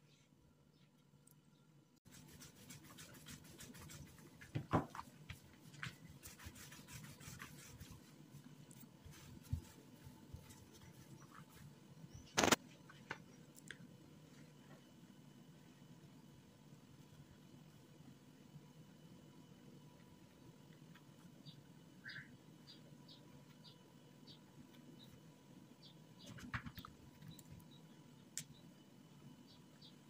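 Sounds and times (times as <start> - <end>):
rolling pin rolling dough: 2.1 - 11.7.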